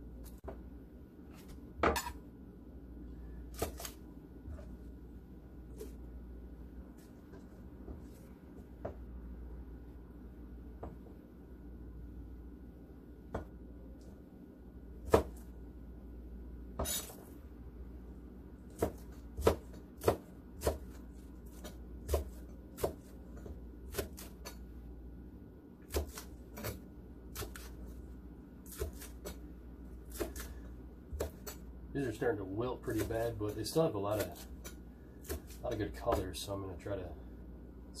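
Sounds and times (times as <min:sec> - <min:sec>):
knife chopping on cutting board: 0:03.5 - 0:04.0, 0:15.1 - 0:15.4, 0:18.7 - 0:24.6, 0:25.9 - 0:27.7, 0:28.6 - 0:29.4, 0:30.1 - 0:31.6, 0:32.8 - 0:36.4.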